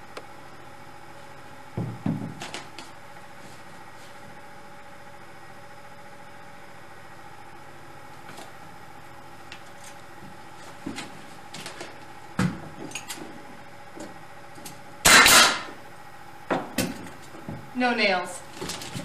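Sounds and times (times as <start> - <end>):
nail gun blast: 15.0 - 15.7.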